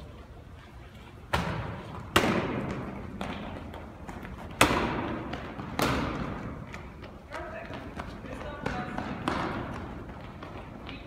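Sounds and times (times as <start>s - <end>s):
heavy thuds on gym floor echoing: 1.3s - 6.8s, 7.6s - 10.6s.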